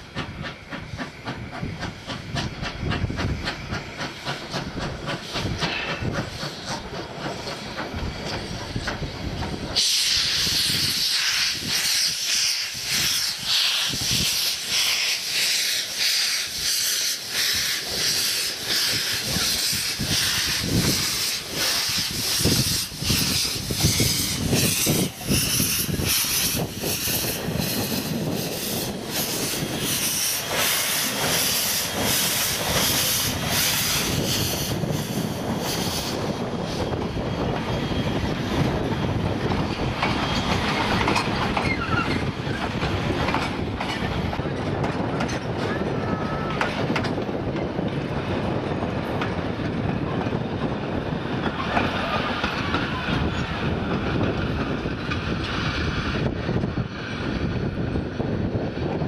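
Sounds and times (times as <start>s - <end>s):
hissing steam: 0.0s - 44.4s
carriages clacking over rail joints: 0.0s - 59.0s
steam locomotive exhaust beats: 0.0s - 59.0s.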